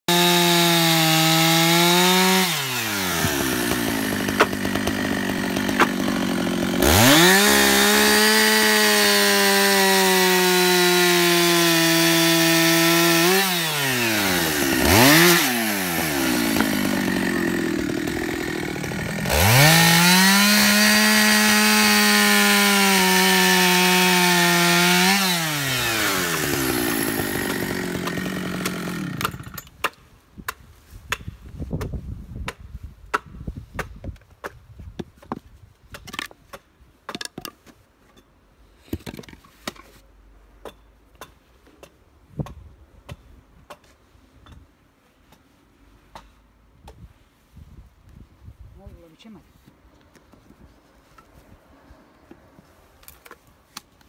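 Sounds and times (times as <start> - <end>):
chainsaw cutting wood: 0.1 - 29.9.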